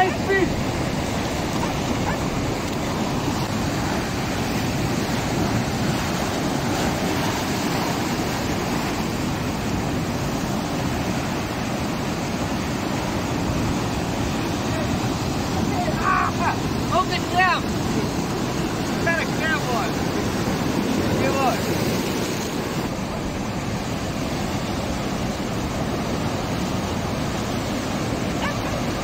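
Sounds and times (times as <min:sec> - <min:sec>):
surf breaking over rocks: 0:00.0 - 0:29.0.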